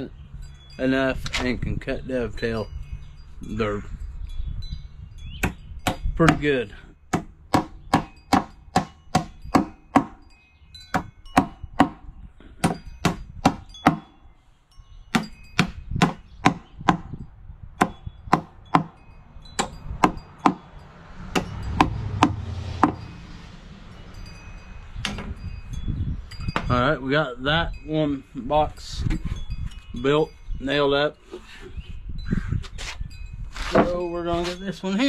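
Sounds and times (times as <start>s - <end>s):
low rumbling noise: 19.0s - 27.4s.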